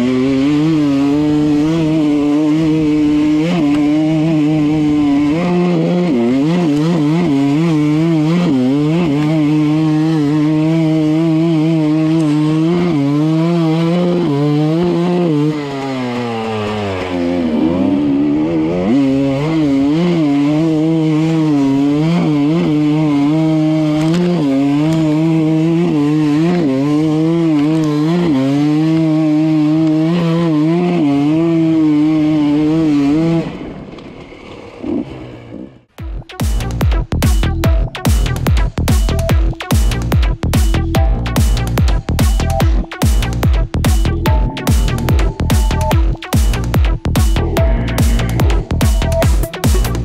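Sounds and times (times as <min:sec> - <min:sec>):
dirt bike engine running: 0:00.0 - 0:50.0
electronic music: 0:36.0 - 0:50.0.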